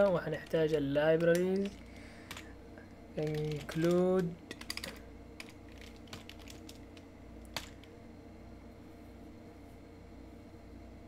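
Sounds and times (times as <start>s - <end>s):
computer keyboard keys clicking: 0.0s - 2.5s, 3.2s - 7.9s.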